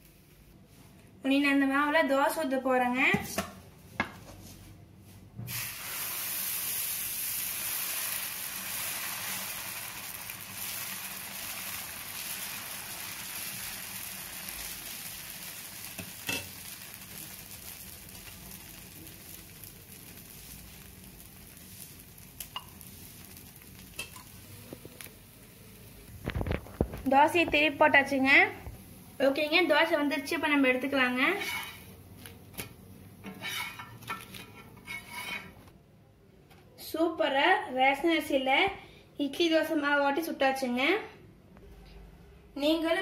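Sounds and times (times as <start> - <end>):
batter sizzling on a griddle: 5.5 - 35.6.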